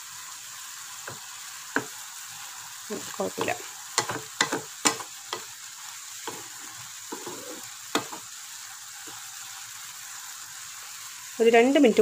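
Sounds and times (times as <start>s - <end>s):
liquid sizzling in pan: 0.0s - 12.0s
wooden spatula scraping pan: 6.2s - 8.2s.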